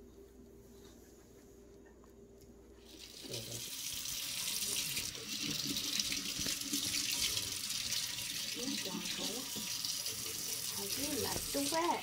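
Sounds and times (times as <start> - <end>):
water running from faucet into sink: 2.8 - 12.0.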